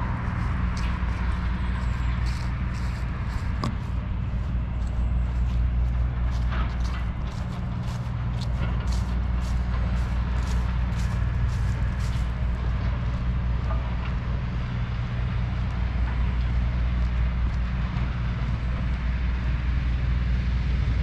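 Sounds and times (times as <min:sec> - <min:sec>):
footsteps: 0:00.0 - 0:14.2
street traffic hum: 0:00.0 - 0:21.0.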